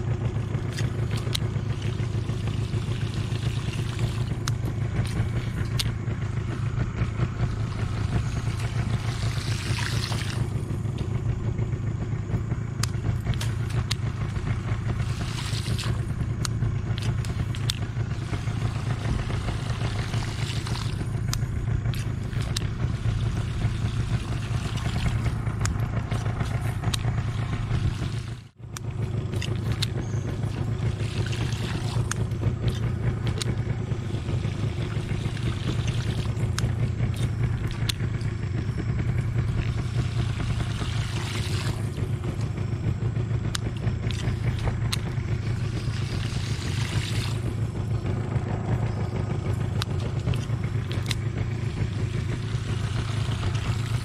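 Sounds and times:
small boat engine running: 0:00.0 - 0:54.0
sharp light clicks: 0:12.8 - 0:14.1, 0:20.9 - 0:22.7, 0:35.8 - 0:38.4.

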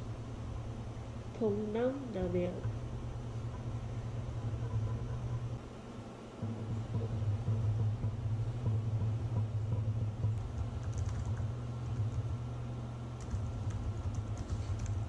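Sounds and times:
steady low hum: 0:00.0 - 0:15.0
laptop keyboard typing: 0:10.4 - 0:12.2, 0:13.2 - 0:15.0.

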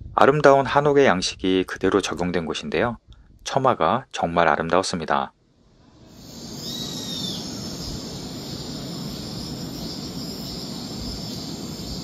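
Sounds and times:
low rushing noise: 0:05.7 - 0:12.0
high insect buzz: 0:06.0 - 0:12.0
short bird call: 0:06.2 - 0:08.7.

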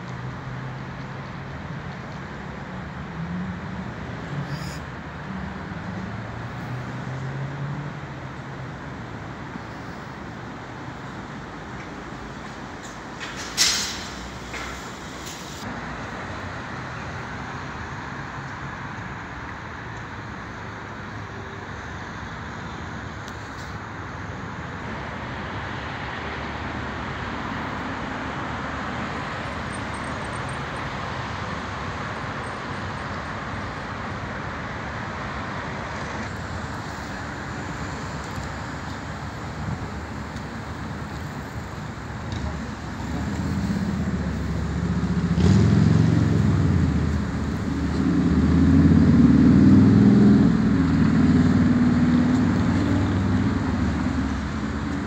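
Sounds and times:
road traffic noise: 0:00.0 - 0:55.0
loud hiss: 0:13.6 - 0:15.6.

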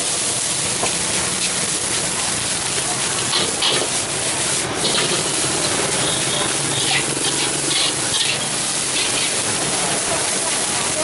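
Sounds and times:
rice sizzling in a wok: 0:00.0 - 0:11.0
metal spatula scraping wok: 0:03.2 - 0:04.0, 0:04.8 - 0:09.6.

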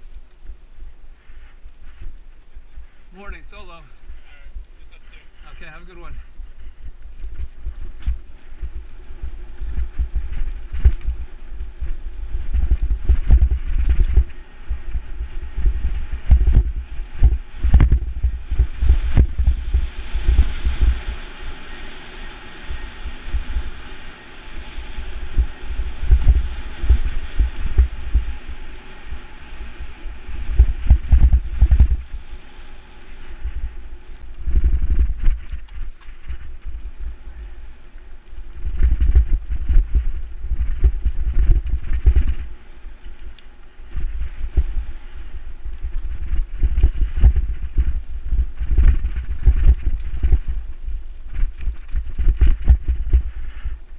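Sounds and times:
wind buffeting microphone: 0:00.0 - 0:53.9
bike rattling and knocking: 0:09.6 - 0:21.0, 0:51.3 - 0:53.7.

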